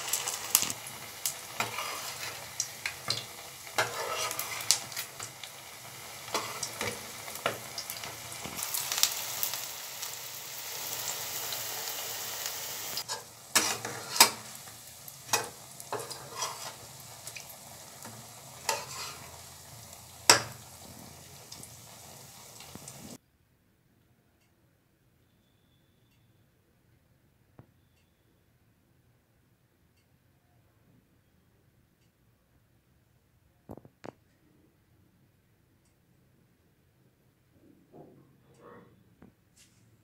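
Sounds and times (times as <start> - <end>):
metal spatula scraping pan: 0.0 - 5.3, 6.3 - 8.5, 13.0 - 14.6, 15.3 - 16.9, 18.6 - 19.4
oil sizzling in a pan: 0.0 - 23.2.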